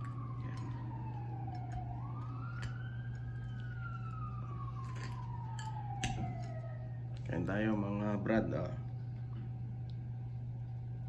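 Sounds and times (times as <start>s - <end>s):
emergency siren wailing: 0.0s - 8.5s
steady low hum: 0.0s - 11.0s.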